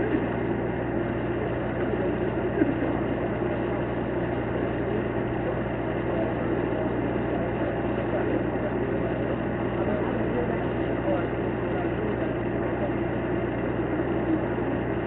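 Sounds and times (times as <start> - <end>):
engines idling: 0.0 - 15.0.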